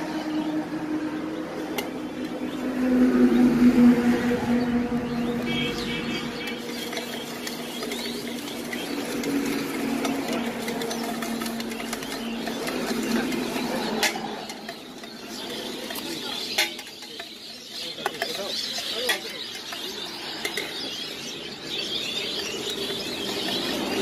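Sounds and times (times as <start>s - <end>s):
puffed rice rattling in metal tin: 5.7s - 20.8s, 22.2s - 24.0s.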